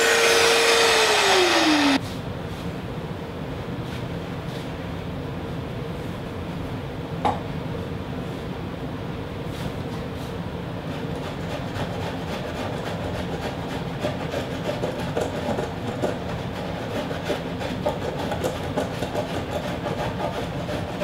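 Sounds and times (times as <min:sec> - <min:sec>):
power tool running against wood: 0:00.0 - 0:02.0.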